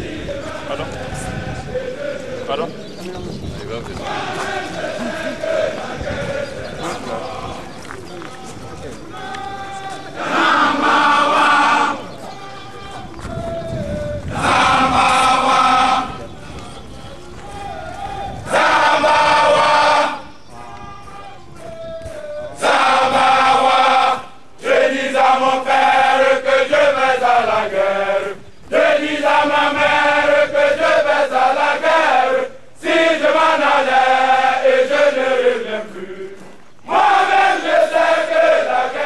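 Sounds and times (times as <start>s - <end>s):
men chanting in unison: 0.0s - 3.1s, 4.0s - 39.0s.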